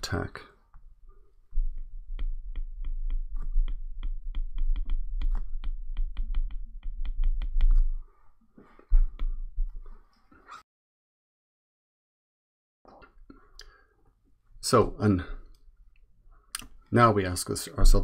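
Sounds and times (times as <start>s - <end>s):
stylus tapping on glass screen: 1.7s - 8.0s.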